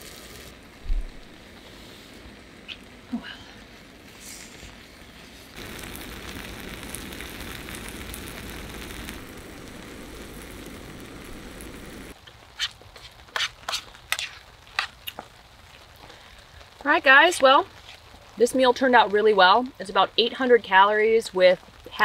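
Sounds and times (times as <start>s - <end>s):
food sizzling in a skillet: 0.0s - 3.1s, 3.8s - 22.0s.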